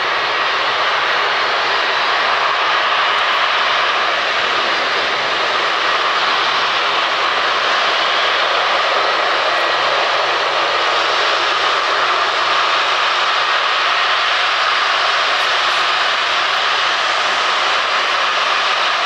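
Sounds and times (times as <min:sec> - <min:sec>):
jet engines at high power: 0:00.0 - 0:19.0.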